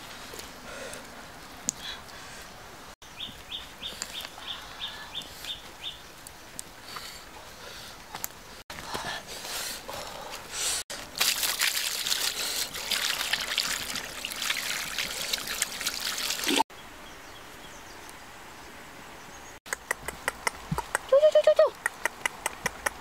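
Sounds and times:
liquid pouring and splashing: 10.9 - 16.6.

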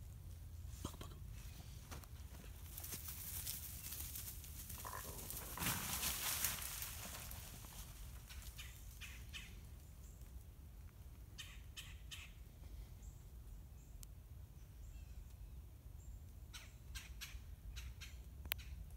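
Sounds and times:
faint scratchy rustles: 0.0 - 10.4.

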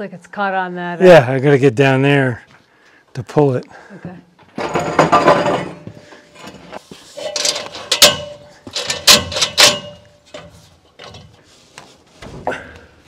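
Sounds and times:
wood and metal knocking: 4.5 - 6.0, 7.2 - 11.3.

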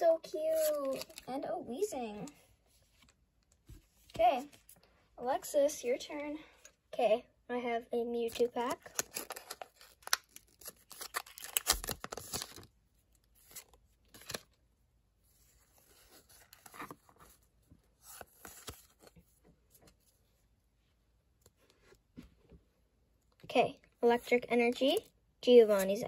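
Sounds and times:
cards rustling and clicking: 0.4 - 4.8, 8.2 - 12.7, 13.3 - 14.6, 18.0 - 20.0
foil wrapper crinkling and tearing: 0.5 - 1.3, 8.3 - 14.6.

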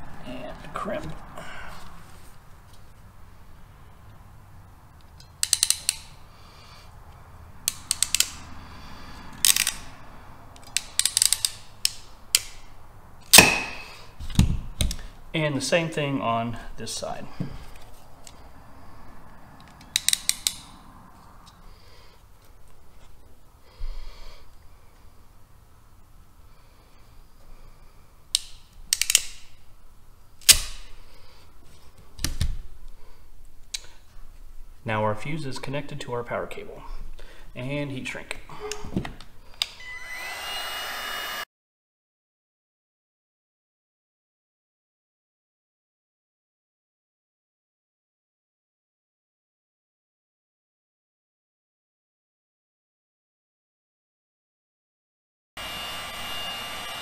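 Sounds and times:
ratcheting crimping tool clicking: 5.1 - 6.2, 7.6 - 8.4, 9.4 - 9.9, 10.6 - 12.6, 19.6 - 20.7, 28.3 - 29.5.

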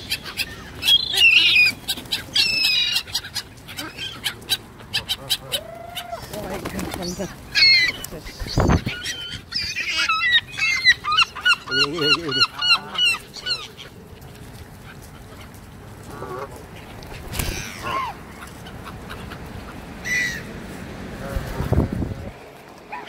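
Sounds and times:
gull calls: 7.6 - 13.9
geese honking: 9.0 - 14.0, 14.9 - 20.6.

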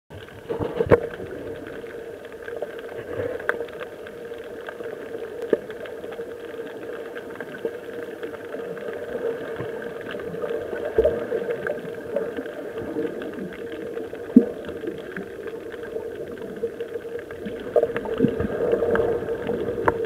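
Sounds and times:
muffled underwater drone: 0.1 - 20.0
underwater clicks and knocks: 0.2 - 1.8, 13.0 - 20.0.

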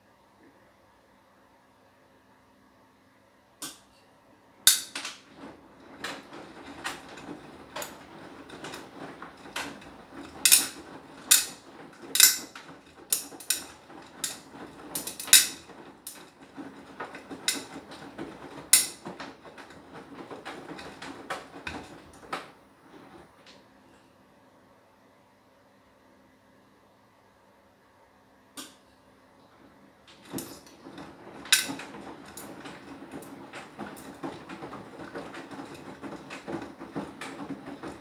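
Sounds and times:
washing machine drum clacking: 4.6 - 23.4, 30.0 - 38.0.

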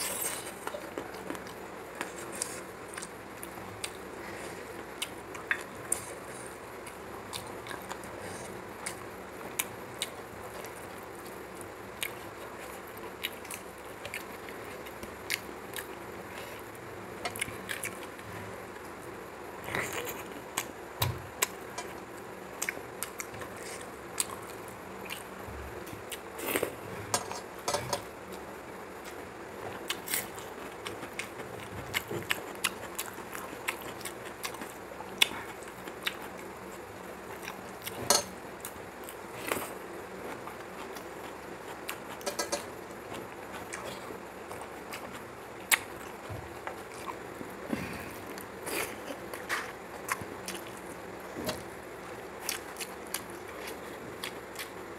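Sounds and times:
person chewing: 0.0 - 9.0, 17.3 - 18.2, 29.0 - 54.8
steady low hiss: 0.0 - 54.9.

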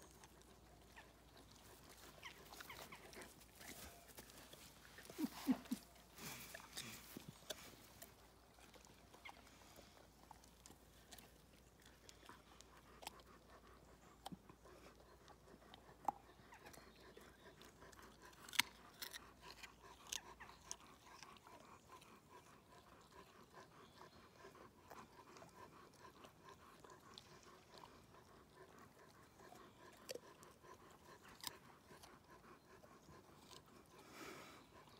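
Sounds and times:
dog chewing crunches: 0.0 - 13.5, 17.6 - 22.5.

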